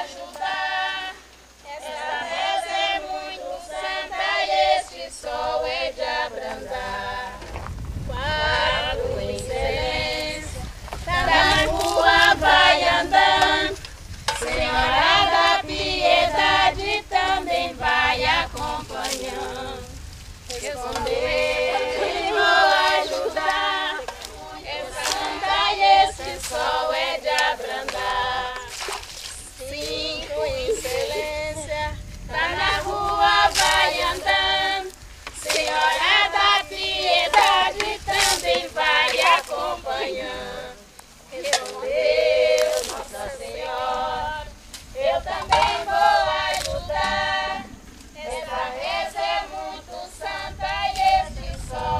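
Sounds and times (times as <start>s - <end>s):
women singing unaccompanied: 0.0s - 51.9s
water splashing: 28.6s - 29.5s.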